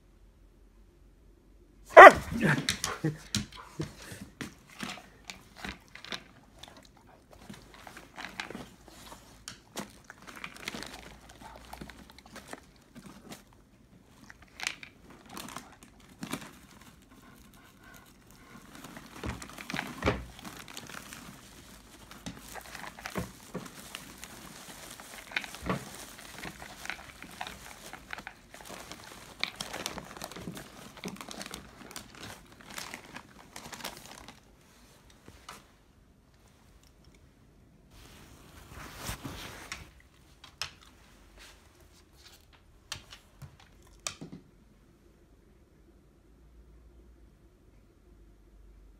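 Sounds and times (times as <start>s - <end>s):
dog crunching dry kibble: 1.9s - 35.6s, 39.0s - 41.5s, 42.2s - 44.3s.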